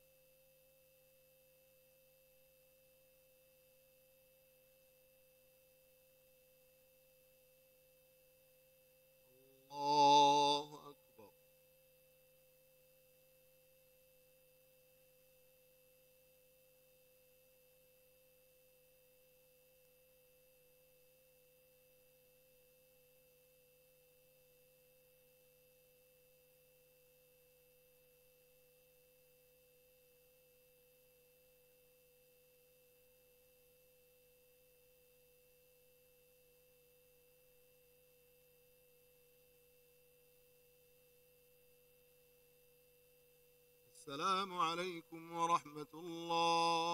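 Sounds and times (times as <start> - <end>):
faint electrical hum: 0.0 - 46.9.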